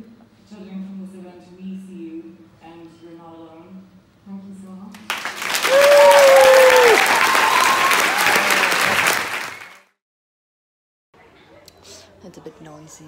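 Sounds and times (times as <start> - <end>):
audience applauding: 5.0 - 10.0
whoops and cheers: 5.5 - 9.8.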